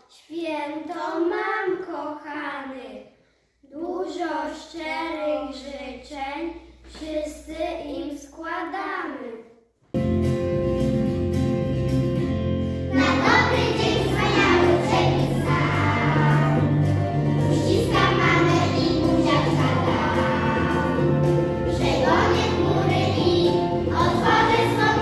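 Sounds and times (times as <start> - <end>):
instrumental backing track: 10.0 - 25.0
children's choir singing: 12.9 - 25.0.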